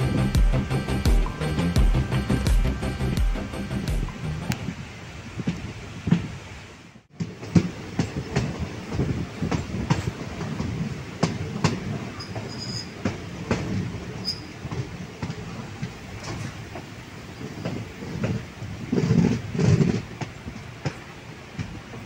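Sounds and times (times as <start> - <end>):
train rumbling on track: 0.0 - 22.0
wheels clicking over rail joints: 7.1 - 22.0.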